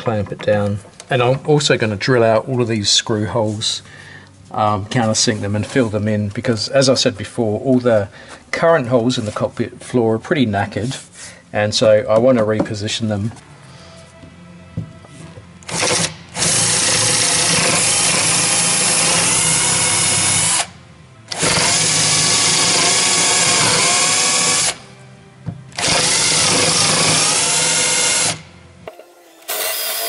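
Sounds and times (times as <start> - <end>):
cordless drill whining: 15.7 - 24.8, 25.8 - 30.0.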